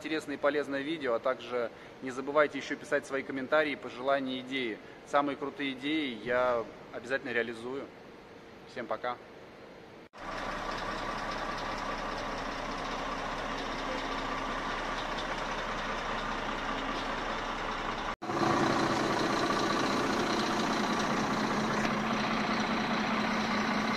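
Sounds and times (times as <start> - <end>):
diesel truck engine idling: 10.2 - 23.9.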